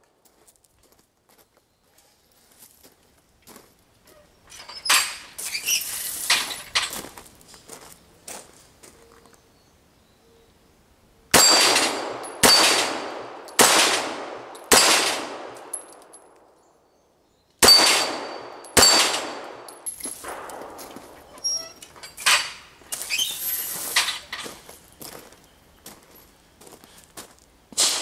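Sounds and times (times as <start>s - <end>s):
pistol shots: 11.3s - 15.9s, 17.6s - 21.2s, 27.8s - 28.0s.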